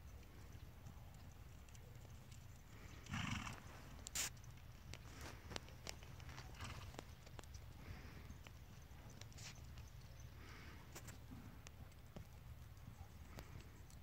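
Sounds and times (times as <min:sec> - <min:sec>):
horse snorting: 0:02.9 - 0:03.7, 0:06.5 - 0:06.9.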